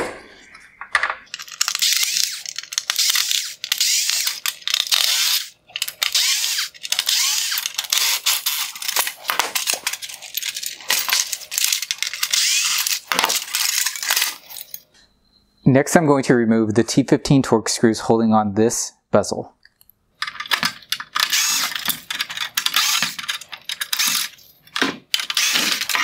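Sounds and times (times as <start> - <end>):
electric screwdriver whirring in bursts: 1.6 - 9.1, 11.6 - 14.1, 21.2 - 23.2, 23.8 - 24.3, 25.2 - 26.0.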